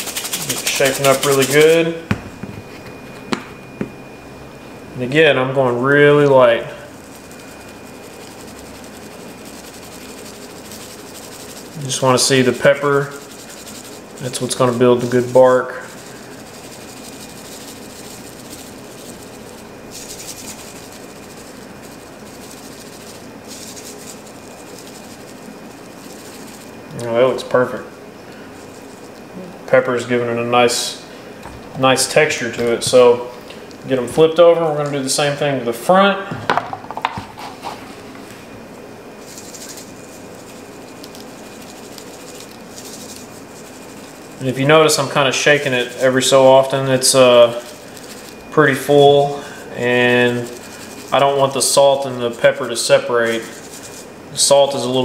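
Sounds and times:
shaker grainy rattling: 0.0s - 2.1s, 6.1s - 29.4s, 39.0s - 55.0s
steady hiss: 0.0s - 2.1s, 39.2s - 55.0s.

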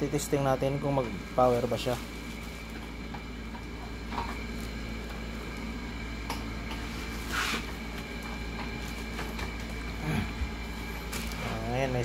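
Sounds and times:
low electrical hum: 0.0s - 12.0s
scrape on workbench: 7.1s - 7.7s.

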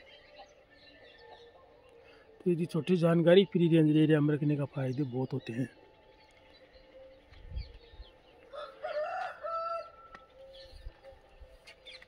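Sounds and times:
rooster crowing: 8.5s - 10.3s.

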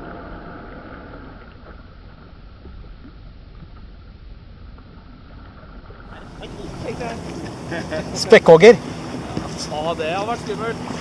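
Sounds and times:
small waves lapping at kayak: 0.0s - 11.0s
wind rumbling on microphone: 0.0s - 11.0s.

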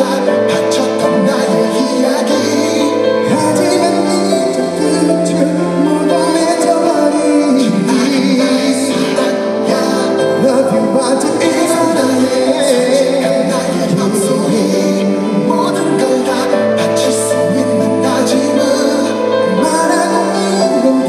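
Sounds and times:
backing music: 0.0s - 21.0s
man singing into a microphone: 0.0s - 21.0s.

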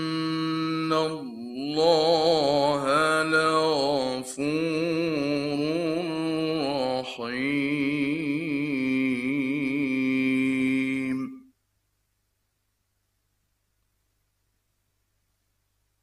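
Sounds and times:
man chanting melodically: 0.0s - 11.5s.

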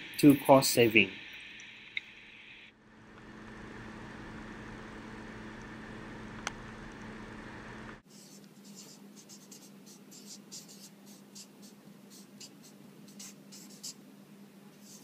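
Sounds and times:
steady background hum: 0.0s - 15.0s
felt-tip marker writing: 8.1s - 14.0s.

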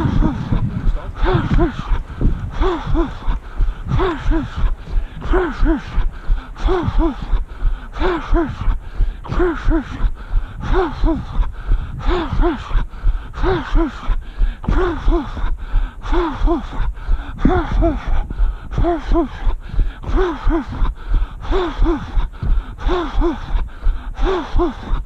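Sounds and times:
low thumps: 0.0s - 13.2s
heavy breathing puffs: 0.0s - 25.0s.

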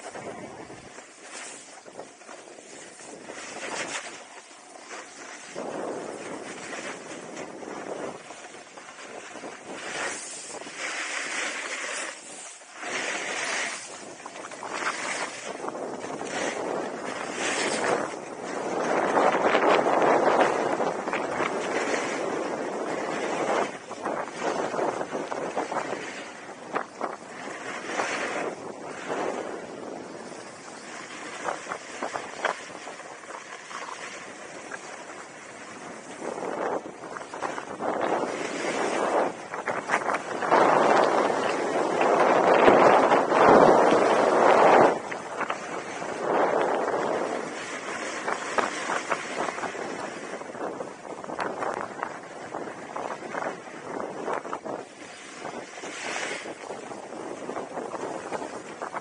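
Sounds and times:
skis scraping over snow: 0.0s - 26.1s, 37.6s - 50.8s
wind on microphone: 0.0s - 59.0s.

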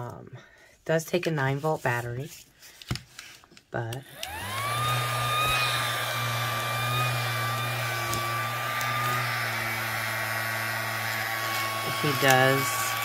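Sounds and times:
small fan motor whining: 4.0s - 13.0s.

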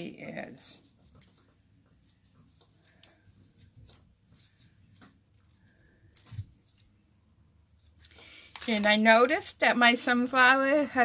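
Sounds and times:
paper rustling: 0.6s - 7.1s, 7.7s - 9.2s.

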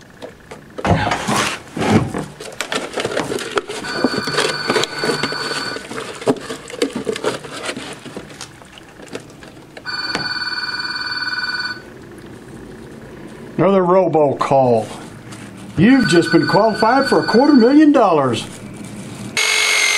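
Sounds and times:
telephone ringing: 3.8s - 6.3s, 9.8s - 12.0s, 15.8s - 18.0s, 19.4s - 19.9s.

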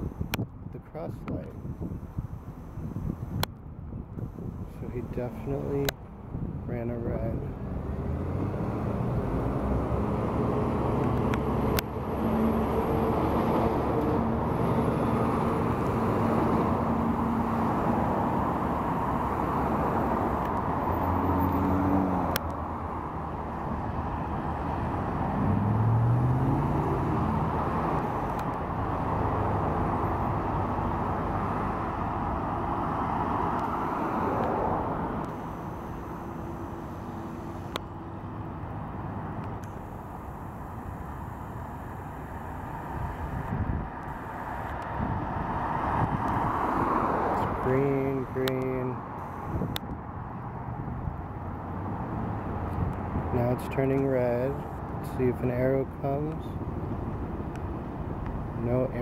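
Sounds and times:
traffic passing: 0.0s - 59.0s
engine accelerating: 7.2s - 55.4s.

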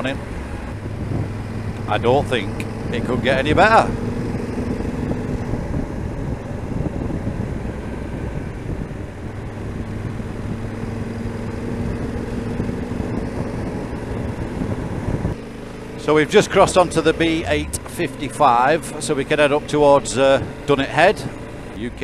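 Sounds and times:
motorcycle engine humming: 0.0s - 22.0s
wind noise: 0.4s - 2.0s, 2.6s - 15.4s.

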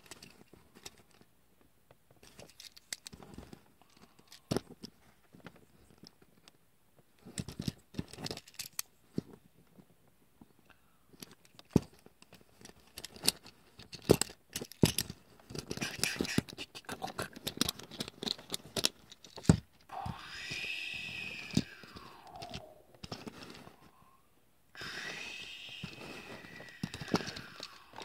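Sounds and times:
plastic toy parts clicking: 2.2s - 3.3s, 3.9s - 4.9s, 7.3s - 8.9s, 11.2s - 19.6s, 20.2s - 23.6s, 25.0s - 28.0s.

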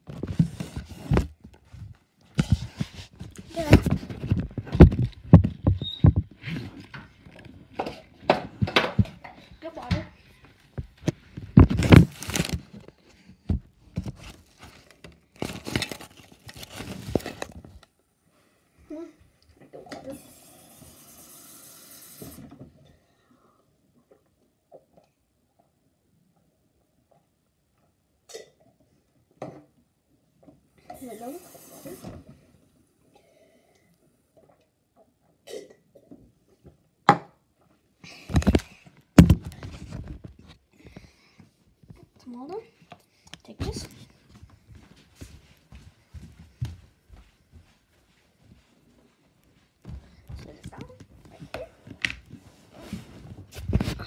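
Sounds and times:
rustling on microphone: 0.0s - 7.4s
rustling: 10.7s - 17.8s.

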